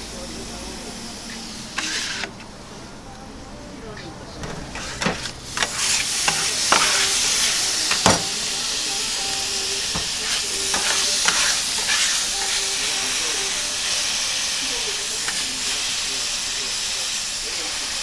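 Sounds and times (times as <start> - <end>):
steak sizzling on a griddle: 0.0 - 2.3, 4.6 - 18.0
metal spatula scraping griddle: 1.3 - 2.4, 4.4 - 16.1.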